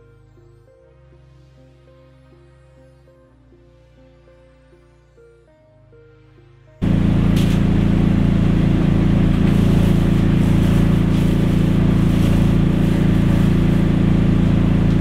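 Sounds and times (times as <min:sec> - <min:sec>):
machinery humming: 0:06.8 - 0:15.0.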